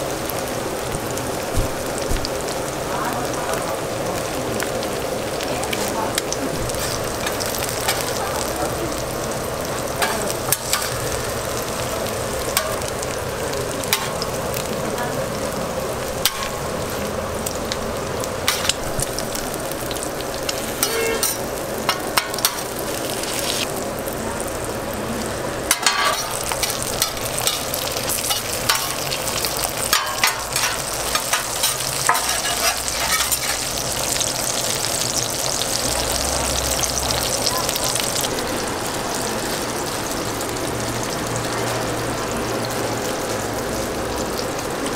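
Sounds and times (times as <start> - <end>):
food sizzling on a griddle: 0.0 - 44.9
metal spatula scraping griddle: 20.6 - 23.7, 29.9 - 33.7.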